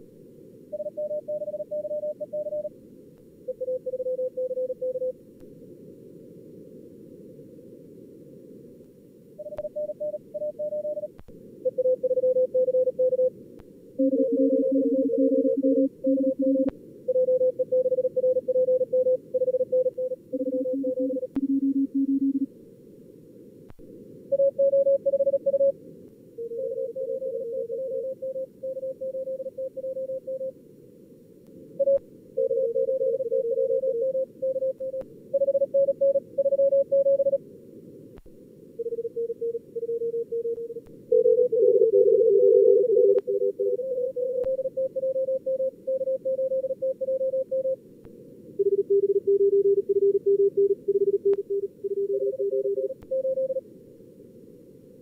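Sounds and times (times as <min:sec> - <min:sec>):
receiver noise hiss: 0:00.0 - 0:55.0
morse code tones: 0:14.0 - 0:22.5, 0:38.8 - 0:47.8.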